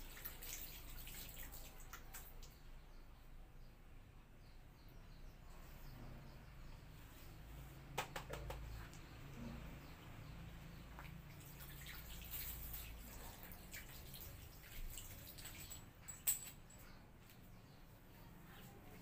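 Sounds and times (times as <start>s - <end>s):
water dripping and trickling: 0.0s - 2.8s, 9.8s - 16.8s
sharp clicks and taps: 8.0s - 9.1s.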